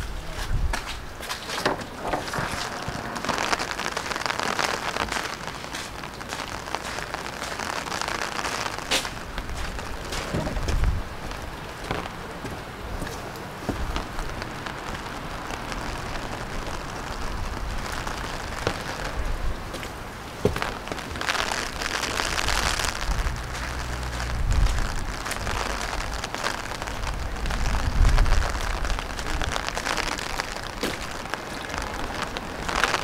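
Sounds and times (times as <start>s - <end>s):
rain on wet ground: 0.0s - 33.0s
low rumbles: 9.0s - 33.0s.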